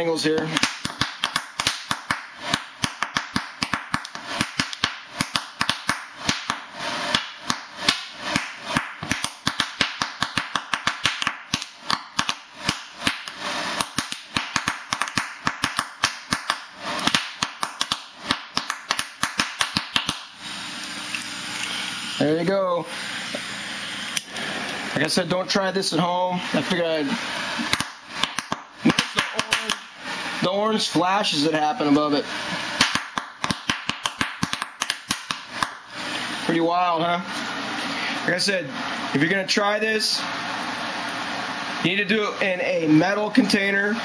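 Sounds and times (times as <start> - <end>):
gas torch hissing: 16.6 - 18.4, 20.0 - 33.1, 35.4 - 44.0.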